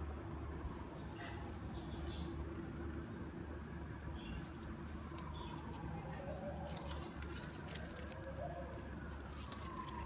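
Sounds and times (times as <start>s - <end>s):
distant traffic rumble: 0.0s - 10.0s
faint siren wail: 4.6s - 10.0s.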